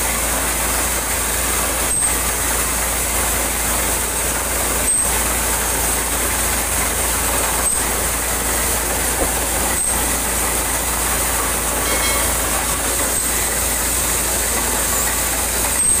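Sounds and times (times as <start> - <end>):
drilling rig machine noise: 0.0 - 16.0
rushing compressed air: 1.0 - 16.0.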